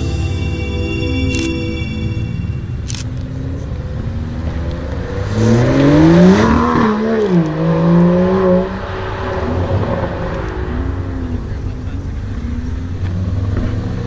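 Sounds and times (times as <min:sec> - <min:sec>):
car accelerating past: 0:03.0 - 0:14.0.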